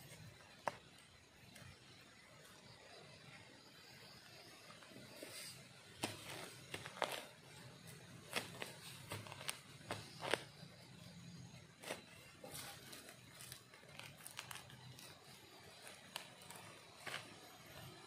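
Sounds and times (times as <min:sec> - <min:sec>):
dry grass and soil rustling: 0:05.2 - 0:11.0, 0:11.6 - 0:18.0.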